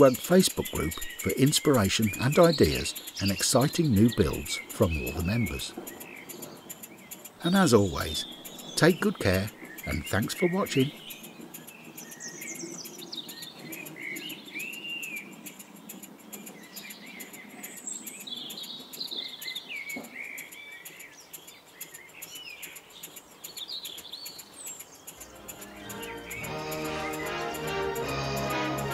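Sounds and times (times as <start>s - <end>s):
small birds chirping: 0.0s - 28.9s
steam engine ticking: 0.0s - 28.9s.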